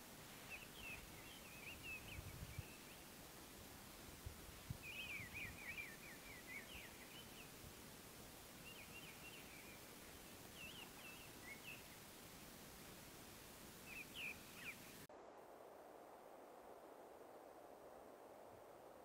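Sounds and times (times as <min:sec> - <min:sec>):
songbird chirping: 0:00.0 - 0:15.1
steady low hiss: 0:00.0 - 0:19.0.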